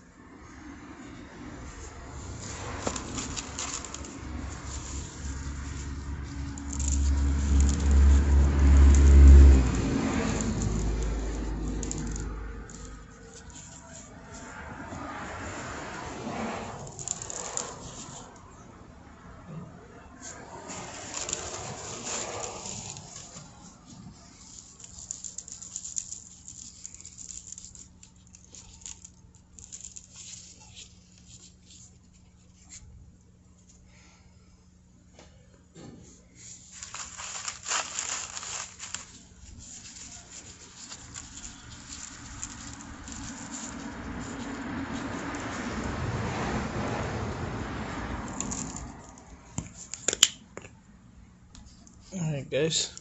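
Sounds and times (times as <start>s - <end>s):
hand rubbing oily potato: 1.4s - 18.5s, 20.2s - 33.0s, 36.4s - 46.4s.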